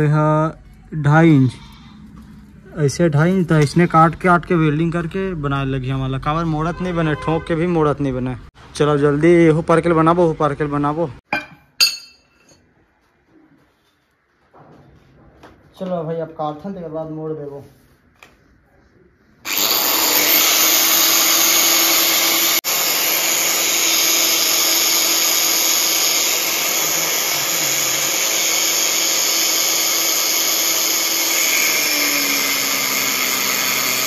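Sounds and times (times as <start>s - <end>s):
angle grinder cutting steel: 19.5s - 34.0s.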